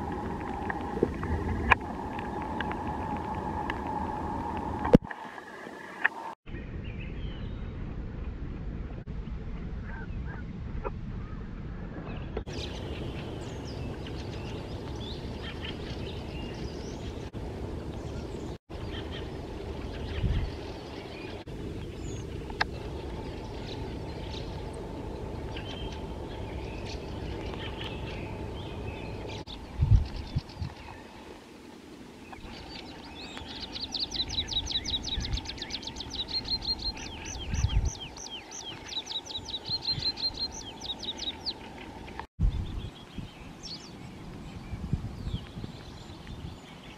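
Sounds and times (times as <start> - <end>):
bird singing rapid high phrases: 32.4 - 41.8.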